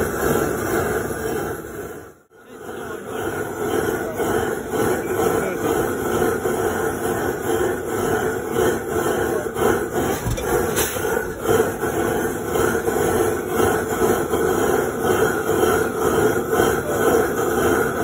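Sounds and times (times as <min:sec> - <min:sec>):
blowlamp burning with rushing noise: 0:00.0 - 0:18.0.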